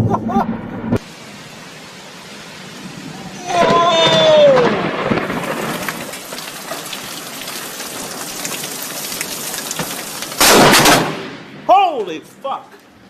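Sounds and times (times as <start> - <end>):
heavy rain on hard surfaces: 1.0 - 13.0.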